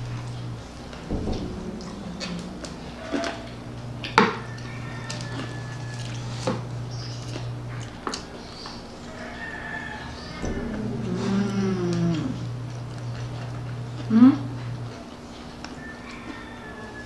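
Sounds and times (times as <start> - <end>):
wind whistling: 0.0 - 5.0
chewing: 1.8 - 17.0.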